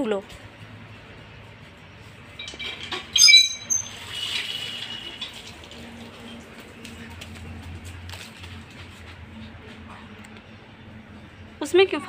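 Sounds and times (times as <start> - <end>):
hand pump squealing: 2.4 - 5.3
water pouring: 2.5 - 6.8.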